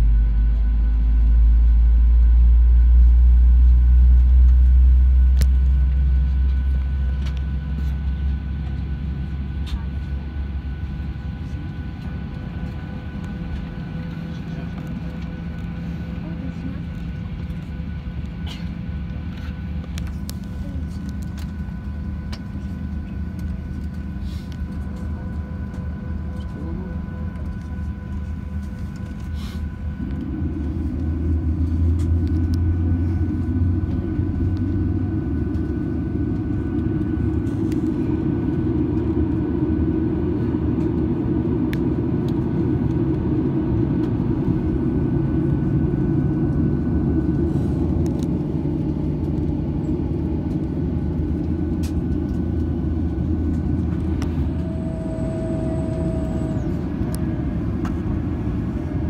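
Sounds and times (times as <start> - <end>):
airliner rolling: 0.0 - 59.0
jet engines rumbling: 0.0 - 59.0
brief steady whine: 50.0 - 59.0.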